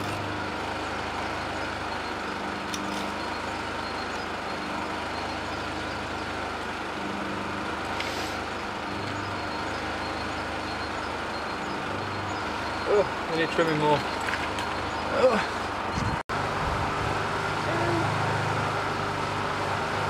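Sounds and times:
short rasp: 8.0s - 8.5s.

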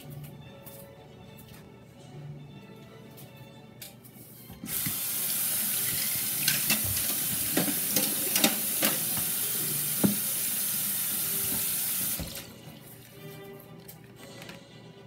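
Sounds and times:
tap running into sink: 4.6s - 12.5s
hands washing under water: 4.7s - 13.3s.

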